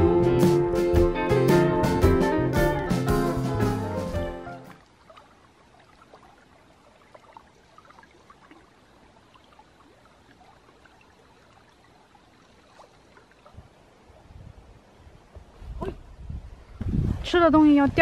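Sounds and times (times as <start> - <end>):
lake water lapping at shore: 4.7 - 15.4.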